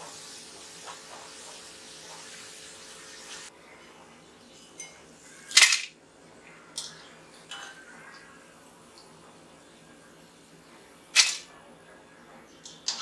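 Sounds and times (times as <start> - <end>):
deep-frying in hot oil sizzling: 0.0 - 3.5.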